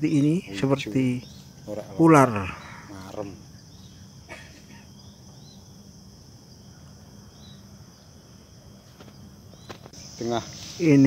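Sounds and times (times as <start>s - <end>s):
insect chirring: 0.0s - 11.0s.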